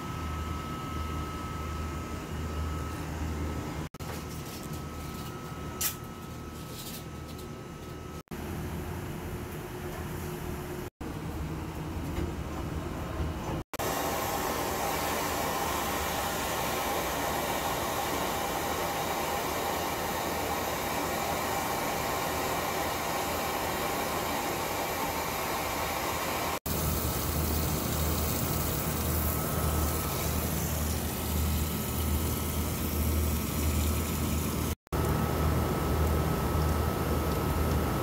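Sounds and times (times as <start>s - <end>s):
gas torch hissing: 13.8s - 34.8s.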